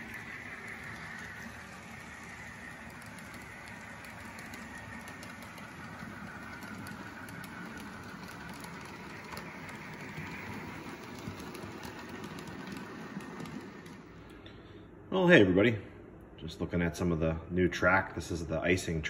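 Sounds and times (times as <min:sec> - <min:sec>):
model train running hum: 0:00.0 - 0:14.4
wheels clicking over rails: 0:00.0 - 0:14.4.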